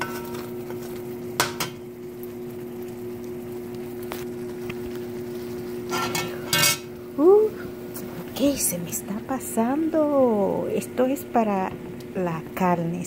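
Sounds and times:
spoon scraping pan: 5.9s - 6.9s.

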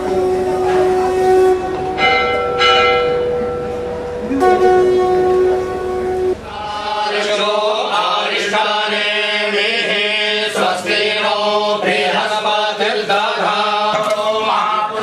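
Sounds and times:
temple bell ringing: 0.0s - 7.0s
low held tone: 0.0s - 7.2s
voices chanting: 3.3s - 15.0s.

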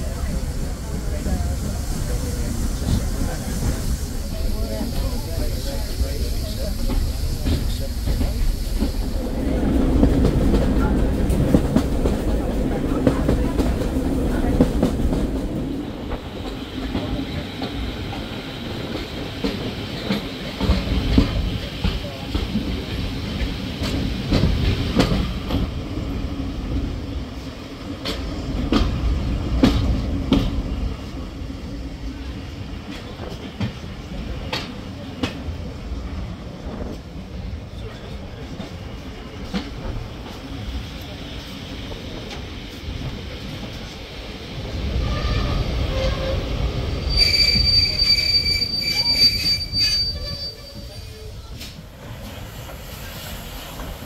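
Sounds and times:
train rumbling: 0.0s - 54.0s
train wheels clicking over rail joints: 2.8s - 31.2s
high-pitched wheel squeal: 47.1s - 51.2s.

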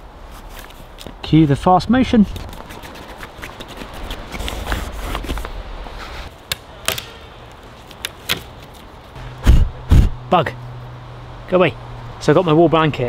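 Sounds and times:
leaves and branches rustling: 0.0s - 10.0s
sticks cracking: 6.3s - 9.2s.

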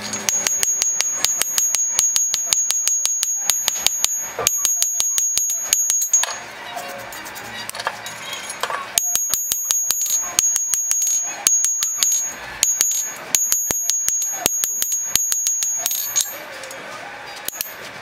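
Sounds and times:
hammer striking blade on anvil: 0.0s - 6.4s, 9.0s - 16.4s, 17.5s - 17.8s.

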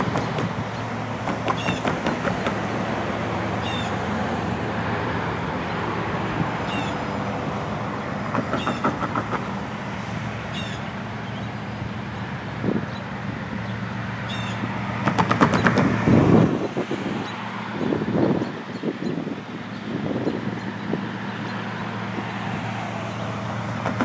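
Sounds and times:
tyres clunking over rails: 0.0s - 2.9s, 8.2s - 9.8s, 15.0s - 16.0s
traffic rumble: 0.0s - 24.0s.

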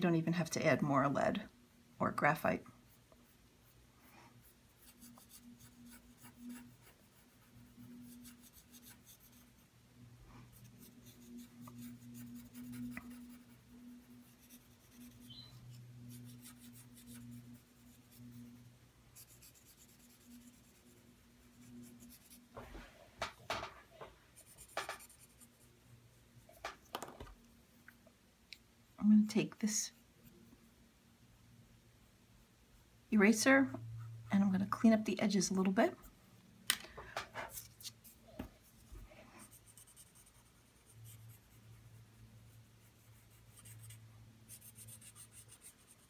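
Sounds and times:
blending stump scratching on paper: 4.4s - 9.6s, 10.5s - 18.6s
steady low hum: 27.4s - 46.0s.

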